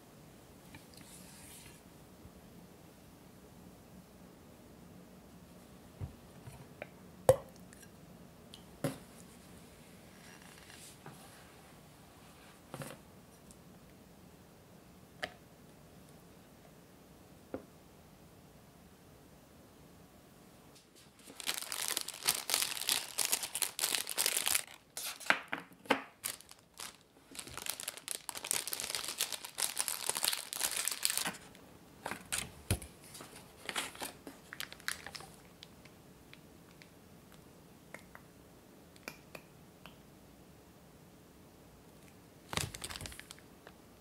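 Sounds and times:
plastic bags crinkling: 21.0s - 25.3s, 26.1s - 35.6s, 42.5s - 43.4s.

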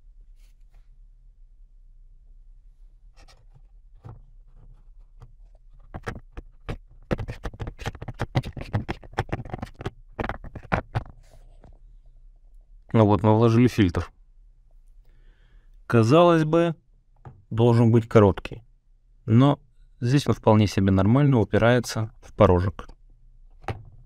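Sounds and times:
air filter scraping plastic housing: 3.2s - 11.8s.

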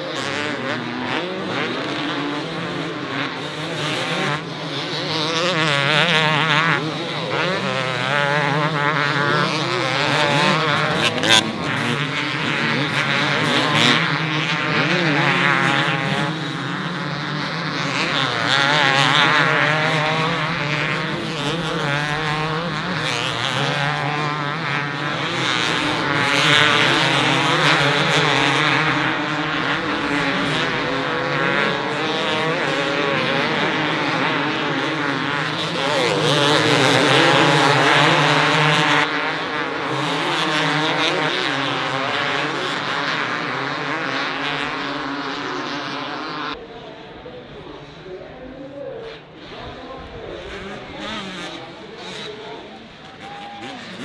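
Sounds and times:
motocross bikes racing: 0.0s - 54.0s.

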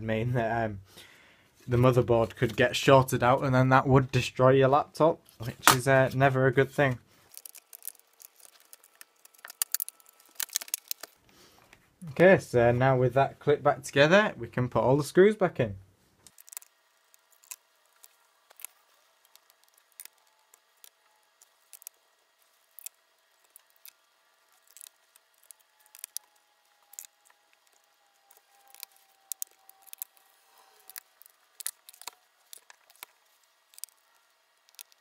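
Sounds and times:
screwdriver clicks and ticks: 24.6s - 33.1s.

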